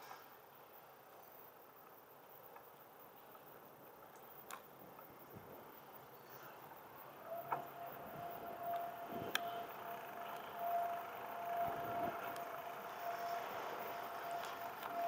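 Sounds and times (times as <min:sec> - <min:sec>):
steady high whine: 0:00.0 - 0:15.0
bicycle riding rush: 0:04.8 - 0:15.0.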